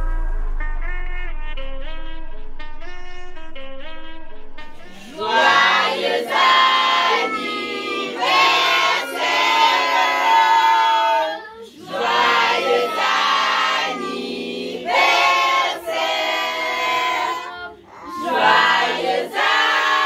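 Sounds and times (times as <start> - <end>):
group singing a celebration song: 4.8 - 20.0.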